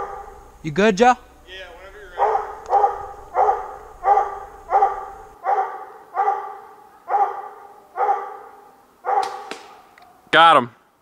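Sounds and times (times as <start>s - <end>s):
dog barking: 0.0s - 0.4s, 2.0s - 10.2s.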